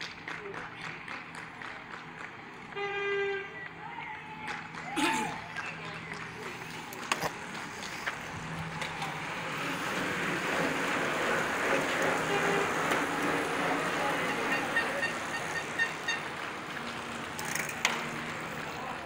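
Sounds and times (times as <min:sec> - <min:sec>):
bicycle tyres and freewheels whirring: 0:00.0 - 0:19.0.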